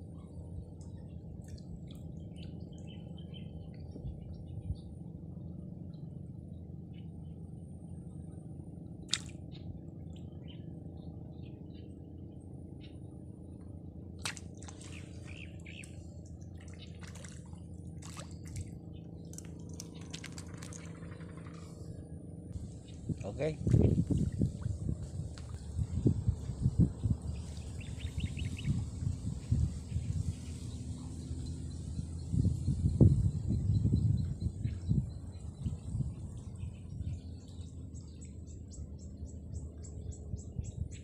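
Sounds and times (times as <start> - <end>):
low background rumble: 0.0 - 41.0
fish splashing at water surface: 9.1 - 9.4, 14.2 - 15.9, 16.6 - 21.1.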